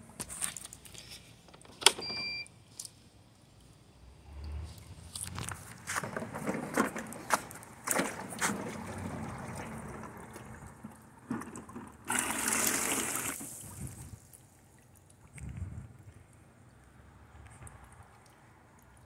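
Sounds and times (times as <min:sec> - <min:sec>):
water sloshing and gurgling: 0:05.3 - 0:19.0.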